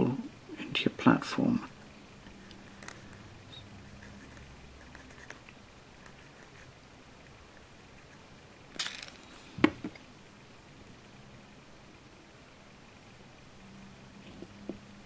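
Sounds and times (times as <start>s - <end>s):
handling small plastic parts: 2.4s - 3.3s, 8.1s - 10.0s.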